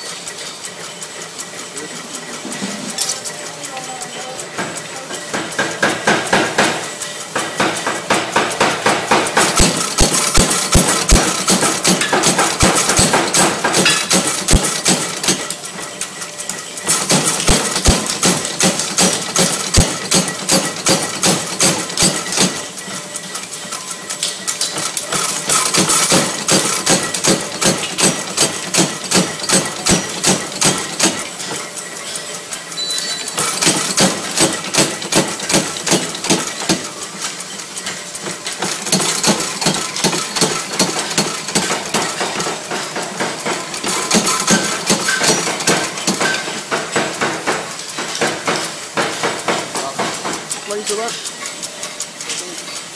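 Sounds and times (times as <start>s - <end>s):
power hammer striking hot steel: 4.6s - 15.6s, 16.8s - 22.7s, 24.6s - 31.7s, 32.8s - 37.0s, 38.2s - 51.1s.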